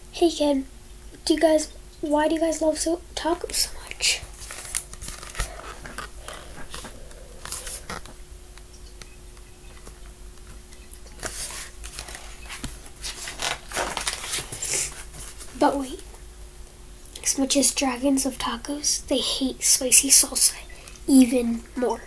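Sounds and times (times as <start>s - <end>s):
paper pages rustling: 4.2s - 8.2s, 11.1s - 15.6s.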